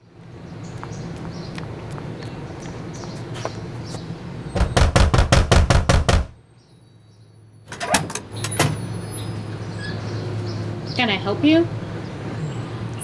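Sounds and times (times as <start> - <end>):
rapid knocking on door: 4.6 - 6.4
doorknob turning and latch click: 7.7 - 8.8.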